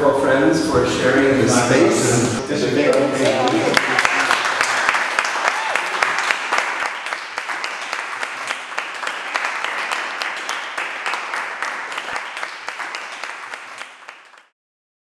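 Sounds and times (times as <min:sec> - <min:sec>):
people applauding: 0:02.8 - 0:14.5.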